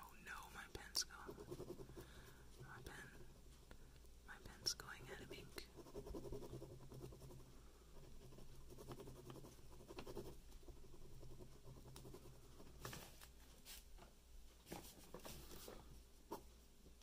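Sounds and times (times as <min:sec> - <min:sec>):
pen scratching on paper: 0:01.1 - 0:03.5, 0:04.6 - 0:13.0.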